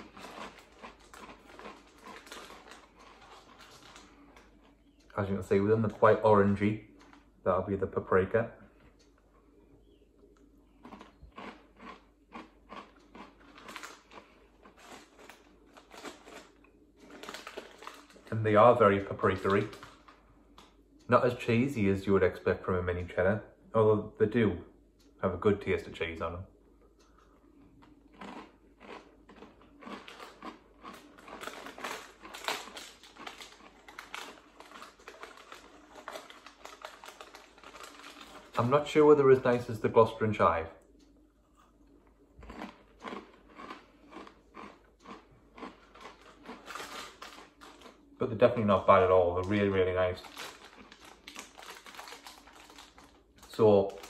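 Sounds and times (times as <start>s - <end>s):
crunchy cracker chewing: 0.0s - 6.1s, 10.2s - 18.5s, 19.2s - 20.7s, 27.0s - 39.6s, 41.4s - 48.1s, 49.4s - 54.0s.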